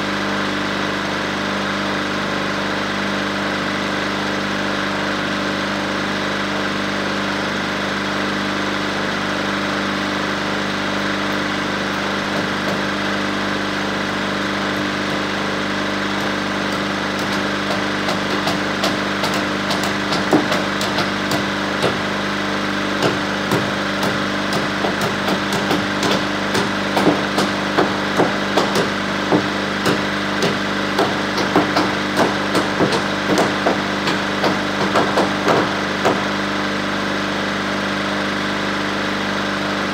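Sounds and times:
bulldozer engine idling: 10.4s - 36.9s
hammer striking wood: 12.2s - 13.0s, 16.2s - 22.0s, 23.0s - 36.4s.

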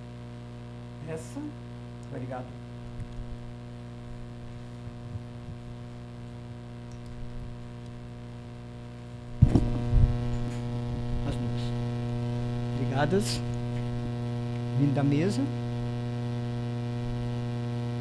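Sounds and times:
electrical mains hum: 0.0s - 18.0s
sharp thump: 9.4s - 9.8s.

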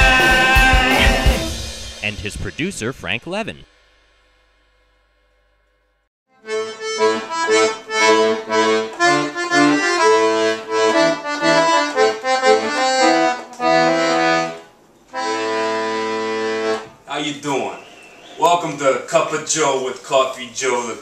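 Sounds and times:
accordion playing a tune: 6.3s - 17.0s.

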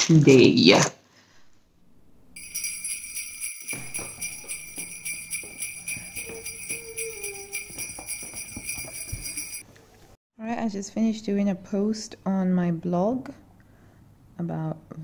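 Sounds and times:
jingle bells shaking: 2.4s - 9.6s.

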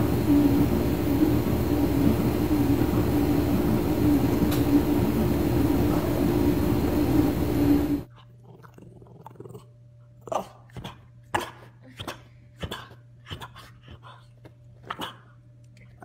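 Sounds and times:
mechanical drone with low hum: 0.0s - 8.7s.

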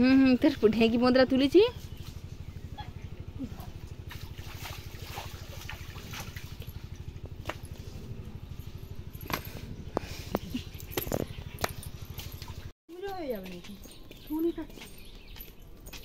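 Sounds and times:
small engine running: 0.0s - 12.7s.

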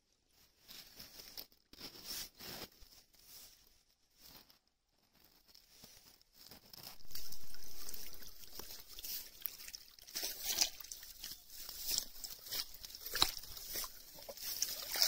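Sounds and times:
small splashes and trickles: 6.8s - 15.0s
shallow water sloshing: 6.9s - 15.0s.

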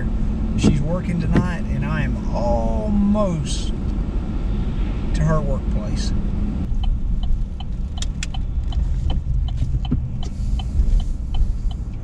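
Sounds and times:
turn signal ticking: 0.0s - 2.1s, 6.6s - 12.0s
road and engine rumble: 0.0s - 12.0s.

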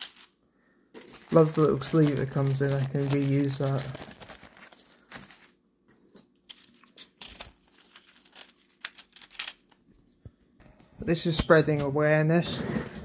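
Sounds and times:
foil packaging crinkling: 0.0s - 0.4s, 1.0s - 5.6s, 6.2s - 9.9s.

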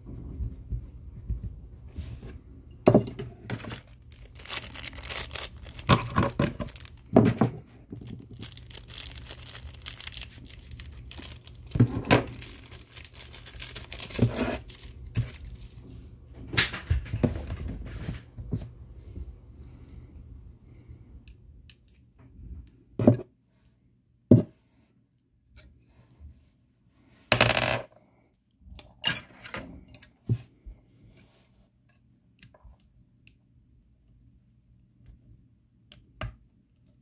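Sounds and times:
plastic packaging crinkling: 3.5s - 15.8s.

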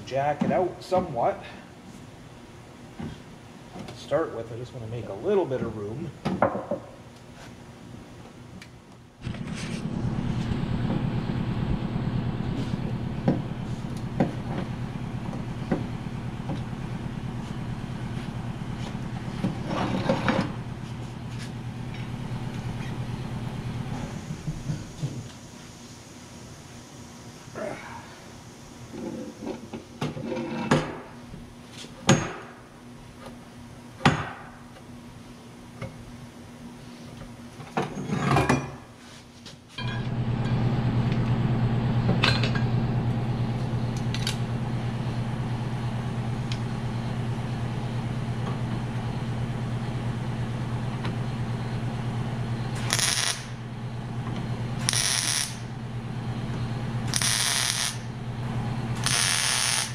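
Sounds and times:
welder humming: 8.6s - 29.7s, 39.8s - 59.9s
crackling arc bursts: 52.7s - 53.6s, 54.8s - 55.7s, 57.0s - 58.1s, 58.9s - 59.9s.

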